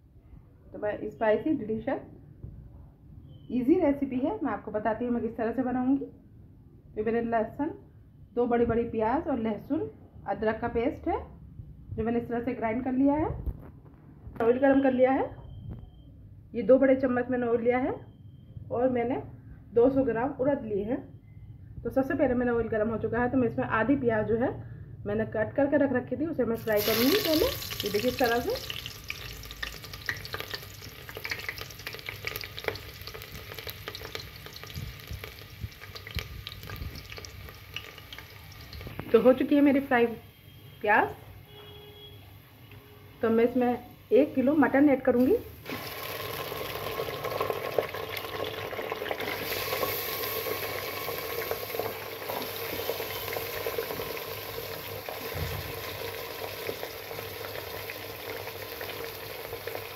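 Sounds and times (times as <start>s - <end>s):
onions sizzling in hot oil: 26.6s - 39.8s, 44.0s - 59.9s.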